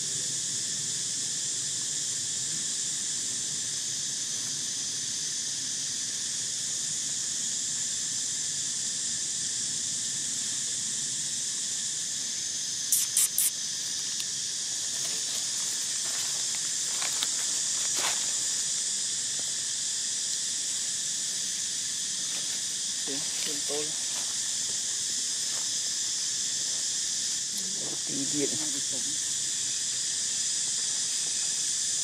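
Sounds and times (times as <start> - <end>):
insect chorus buzzing: 0.0 - 32.0
short sharp high sounds: 12.9 - 13.5.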